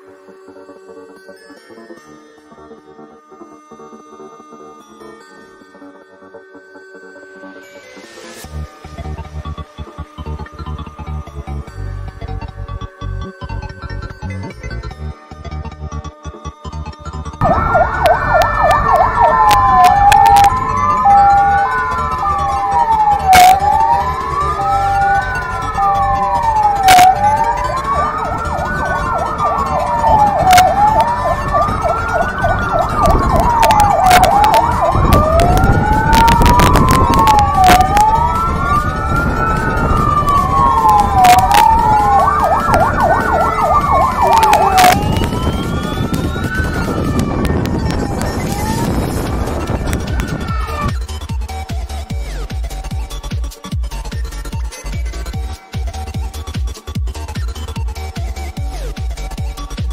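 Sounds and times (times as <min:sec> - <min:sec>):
fire engine sirens wailing: 0:17.4 - 0:53.0.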